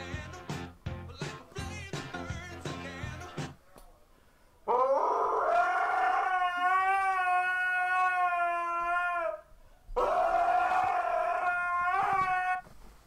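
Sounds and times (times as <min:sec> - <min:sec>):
dog howling: 0:04.7 - 0:09.4.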